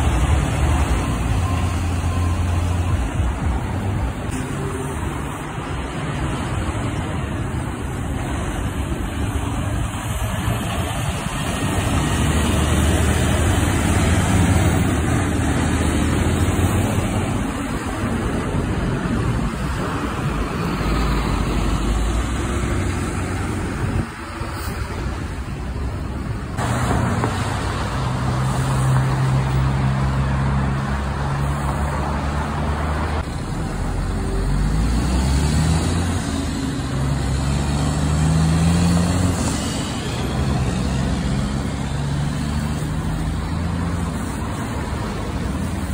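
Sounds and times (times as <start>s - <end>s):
passing cars: 0.0s - 45.9s
tyres hissing on wet pavement: 20.6s - 45.9s.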